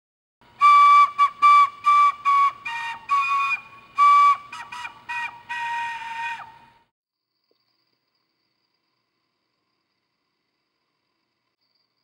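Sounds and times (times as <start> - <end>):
whistle-like wind instrument tune: 0.5 - 6.9.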